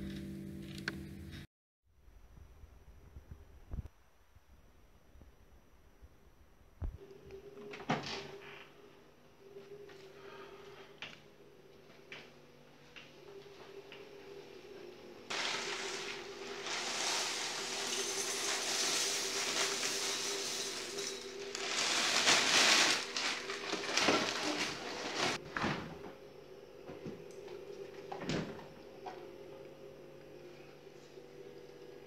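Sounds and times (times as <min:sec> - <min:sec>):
cornflakes pouring into a bowl: 0:15.3 - 0:25.4.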